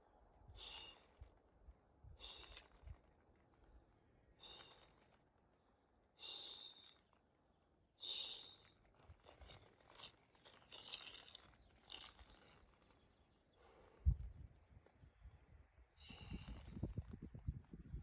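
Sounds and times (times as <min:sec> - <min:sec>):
person breathing: 0:00.5 - 0:01.2, 0:02.1 - 0:03.0, 0:04.4 - 0:05.2, 0:06.2 - 0:07.0, 0:08.0 - 0:08.8
sleeping bag fabric rustling: 0:08.6 - 0:13.2.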